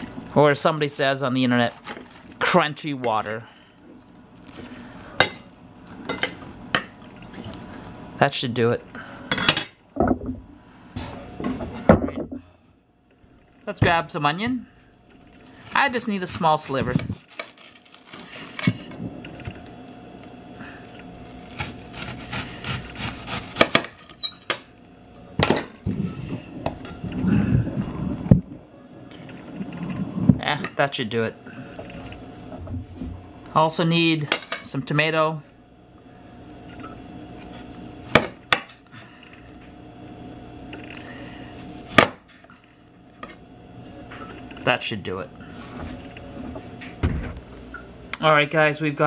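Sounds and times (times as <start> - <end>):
knife slicing onion: 21.3 - 24.1.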